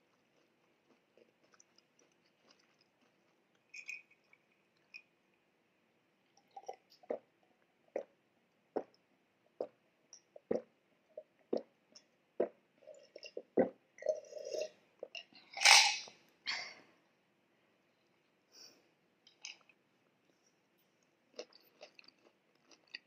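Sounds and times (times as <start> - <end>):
person gulping a drink: 6.4 - 7.3, 7.9 - 9.0, 9.6 - 11.8, 12.4 - 15.7.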